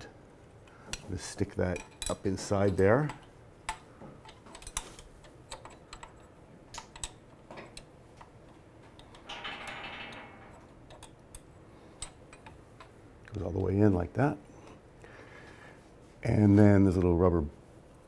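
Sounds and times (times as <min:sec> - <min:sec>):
small metal parts clicking: 0:01.6 - 0:12.9.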